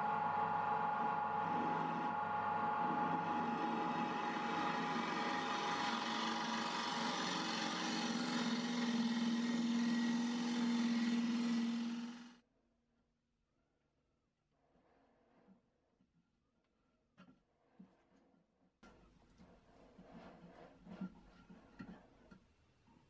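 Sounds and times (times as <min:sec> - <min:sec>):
wood lathe motor hum: 0:00.0 - 0:12.4.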